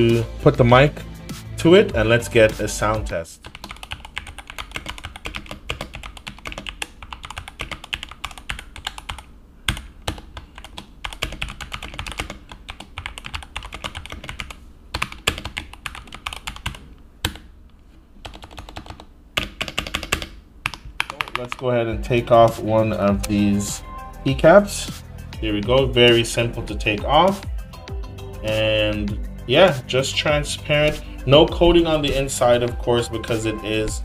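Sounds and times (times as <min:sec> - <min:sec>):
mechanical keyboard typing: 0:03.4 - 0:17.5, 0:18.2 - 0:21.6.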